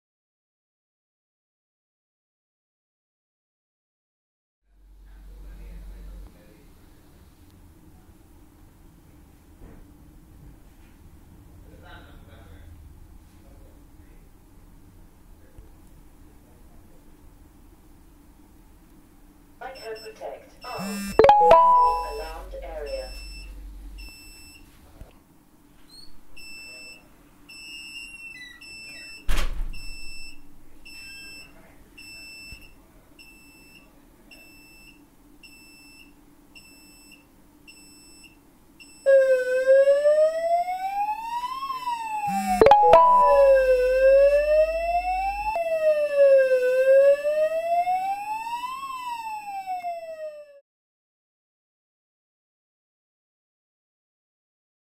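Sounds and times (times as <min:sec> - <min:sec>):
short high beeps: 0:20.8 - 0:23.7, 0:42.3 - 0:44.4
alarm siren wailing: 0:20.8 - 0:24.1, 0:39.1 - 0:50.6
steady high tone: 0:20.8 - 0:24.1, 0:42.3 - 0:46.0.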